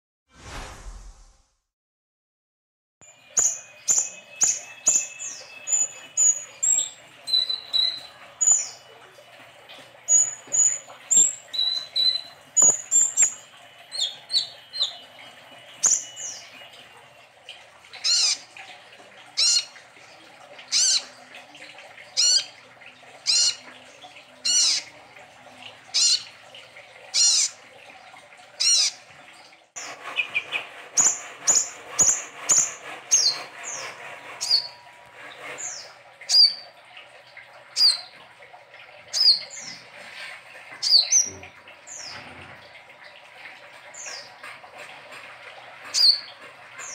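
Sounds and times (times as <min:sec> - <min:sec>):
bird chirping: 0:03.1 - 0:08.9, 0:10.1 - 0:16.8.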